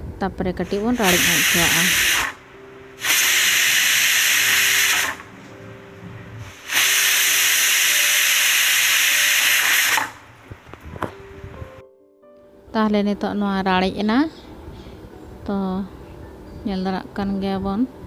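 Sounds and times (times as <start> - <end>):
pressure cooker steam hissing: 0.7 - 2.4, 3.0 - 5.4, 6.4 - 10.3.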